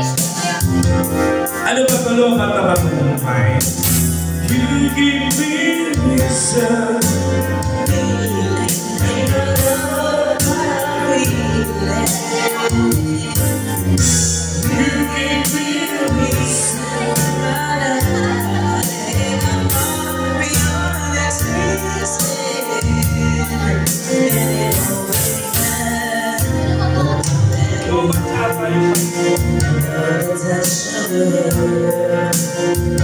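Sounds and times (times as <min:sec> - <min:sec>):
backing music with steady beat: 0:00.0 - 0:33.0
man singing: 0:00.0 - 0:33.0
woman singing: 0:07.9 - 0:13.8, 0:14.7 - 0:28.4.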